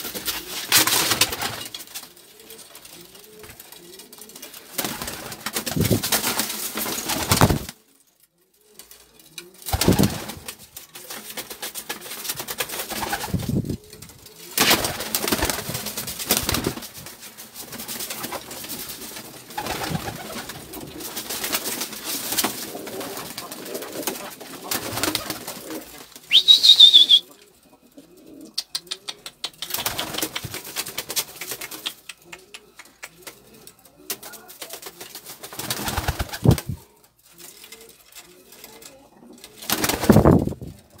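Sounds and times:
wings flapping and scuffling: 0:00.0 - 0:07.9, 0:08.6 - 0:27.2, 0:28.2 - 0:41.0
pigeons cooing: 0:17.8 - 0:30.6.

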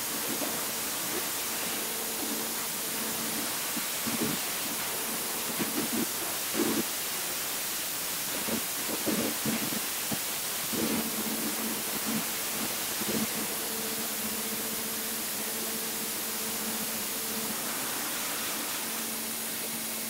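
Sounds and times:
high-pressure water jet hissing: 0:00.0 - 0:20.0.

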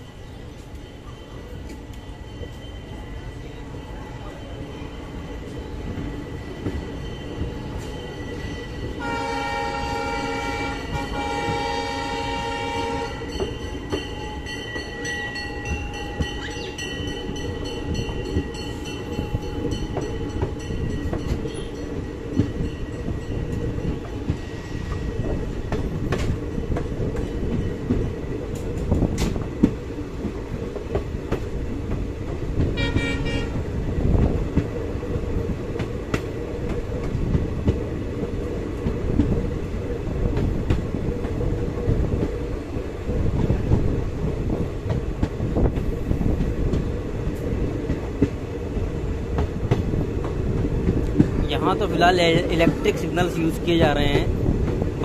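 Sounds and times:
train coach rumbling on track: 0:00.0 - 0:55.0
train horn: 0:09.0 - 0:13.4, 0:32.8 - 0:33.6.

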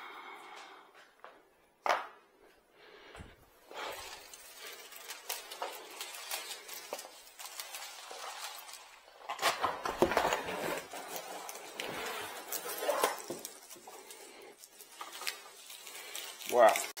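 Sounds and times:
packaging rustling: 0:03.6 - 0:17.0.

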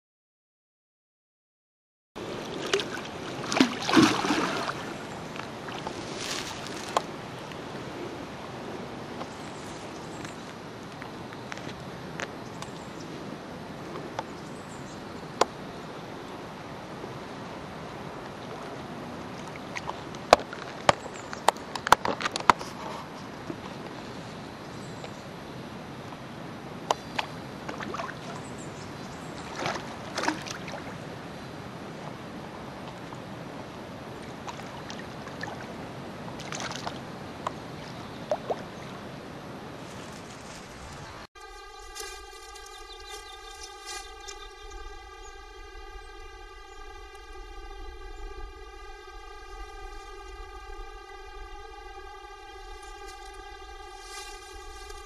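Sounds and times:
fish splashing: 0:02.2 - 0:07.2, 0:29.4 - 0:31.0
water sloshing and lapping: 0:02.2 - 0:08.1, 0:18.1 - 0:23.9, 0:26.9 - 0:31.2, 0:34.1 - 0:39.2
hiss of water and air: 0:02.2 - 0:14.0.

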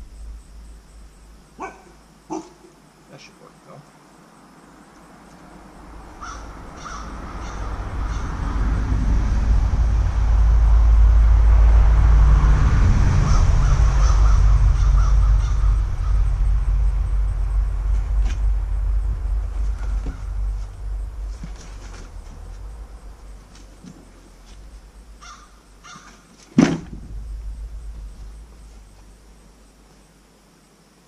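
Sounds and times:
loud low rumble: 0:00.0 - 0:02.2, 0:05.6 - 0:26.0, 0:26.6 - 0:29.8
bird calling: 0:06.1 - 0:08.6, 0:13.3 - 0:16.7, 0:19.6 - 0:29.4.

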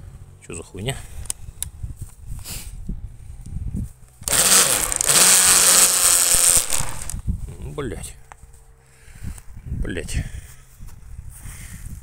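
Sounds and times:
power tool motor running: 0:04.2 - 0:07.2.

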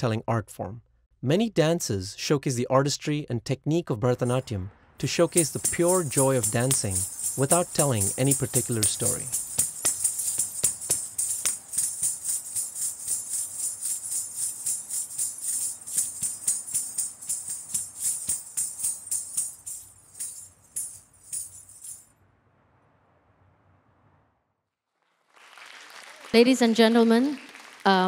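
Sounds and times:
ankle bells jingling: 0:04.2 - 0:22.1
feet striking floor: 0:05.3 - 0:22.0.

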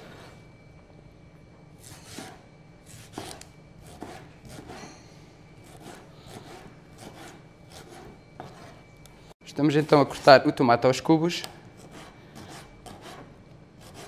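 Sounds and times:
knife cutting tomatoes on board: 0:01.8 - 0:04.8, 0:05.6 - 0:08.8.

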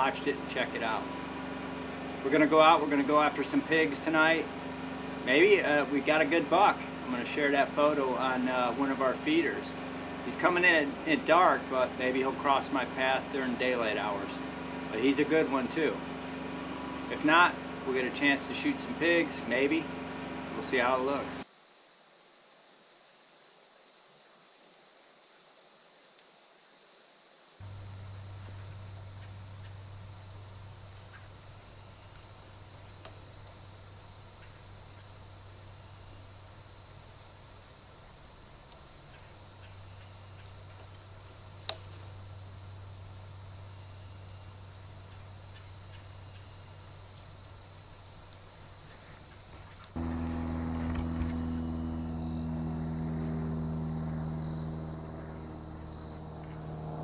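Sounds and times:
insects chorus: 0:00.0 - 0:57.0
low hum: 0:27.6 - 0:57.0
low hum with steady tones: 0:27.6 - 0:57.0
sharp tick: 0:41.6 - 0:41.9.

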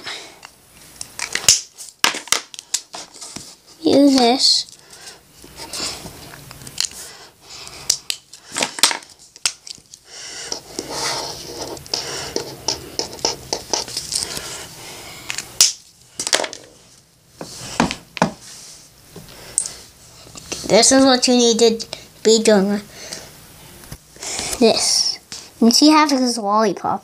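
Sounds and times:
marker scratching on paper: 0:10.4 - 0:14.7.

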